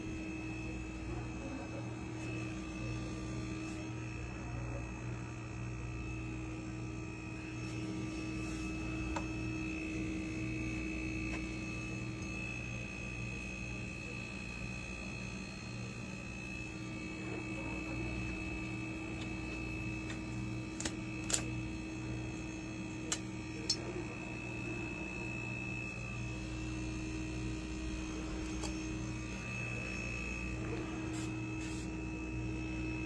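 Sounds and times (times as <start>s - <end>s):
refrigerator compressor humming: 0.0s - 33.0s.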